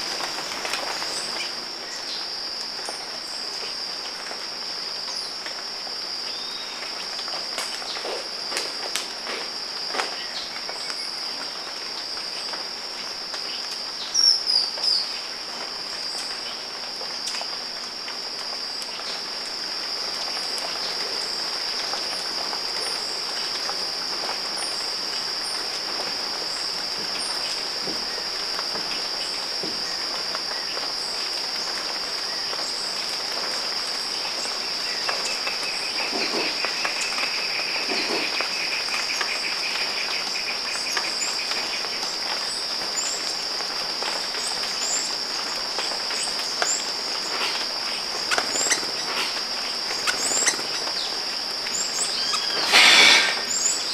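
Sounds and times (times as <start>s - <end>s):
insects droning high: 0.0s - 53.9s
low pulsing insect trill: 0.0s - 53.9s.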